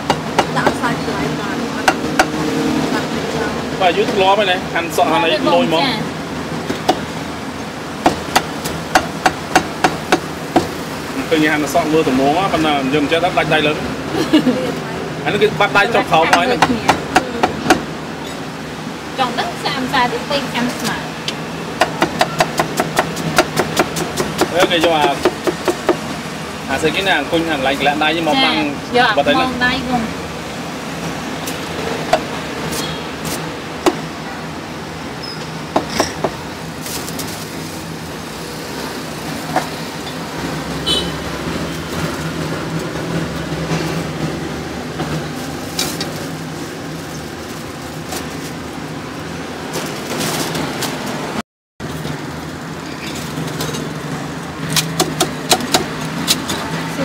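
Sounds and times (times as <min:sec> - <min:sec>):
street noise: 0:00.0 - 0:57.0
cleaver chopping meat on wood: 0:08.0 - 0:10.7, 0:21.8 - 0:26.0.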